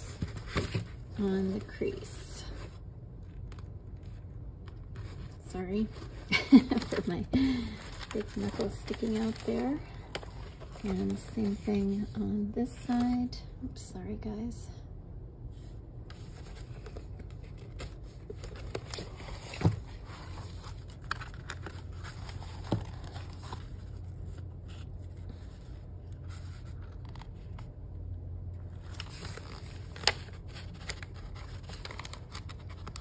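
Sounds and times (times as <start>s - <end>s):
paper scraping and rustling: 4.0s - 13.3s, 16.1s - 27.7s, 28.7s - 33.0s.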